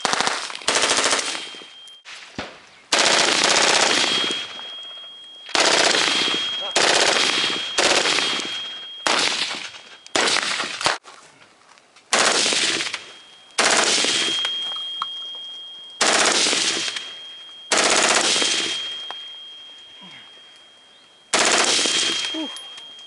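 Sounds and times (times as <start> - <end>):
suppressed automatic gunfire bursts: 0.0 - 1.5, 2.9 - 4.4, 5.5 - 10.9, 12.1 - 13.0, 13.6 - 14.4, 16.0 - 17.0, 17.7 - 18.8, 21.3 - 22.3.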